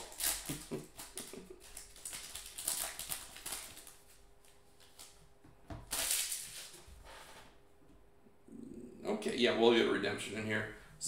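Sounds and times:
foil pack crinkling: 0.0 - 5.2, 5.9 - 6.8.

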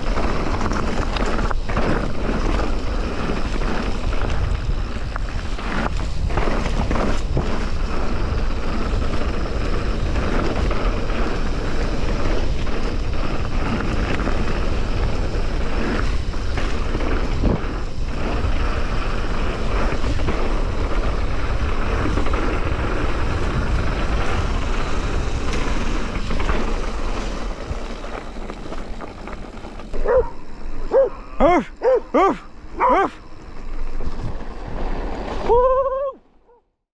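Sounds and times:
bike knocking over bumps: 0.0 - 18.6
wind rushing over microphone: 0.0 - 36.2
tyres rolling on dirt: 0.0 - 36.5.

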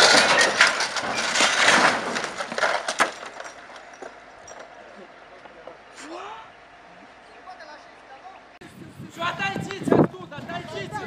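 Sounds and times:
metal crunching and scraping: 0.0 - 6.0.

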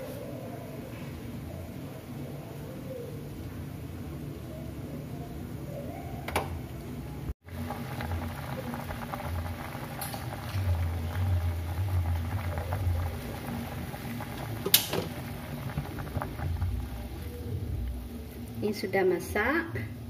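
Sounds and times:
water boiling in a pot: 7.4 - 20.0.

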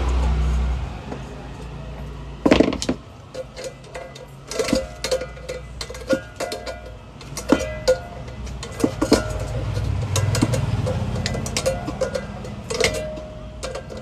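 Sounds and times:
pan ringing: 3.3 - 14.0
tools knocking on metal pan: 4.6 - 14.0.

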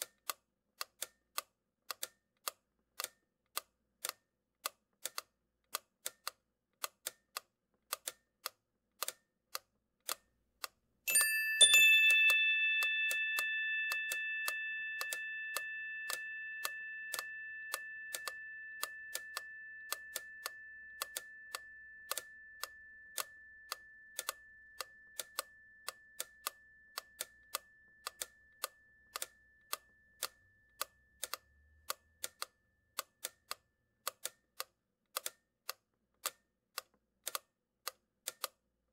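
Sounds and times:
steady ticking: 0.0 - 35.4
ringing bell tone: 11.1 - 30.6.

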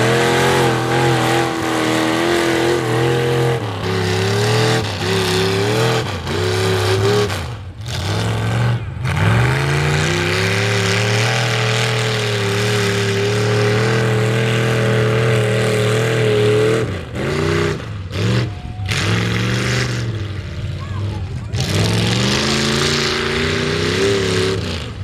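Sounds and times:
truck engine revving: 0.0 - 25.0.

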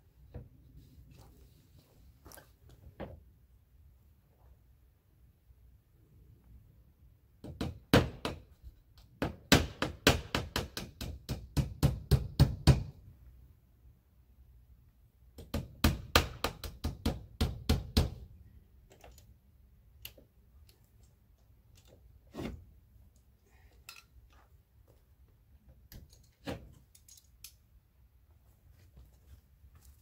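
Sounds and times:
hammer driving nails: 7.4 - 13.0, 15.4 - 18.2.

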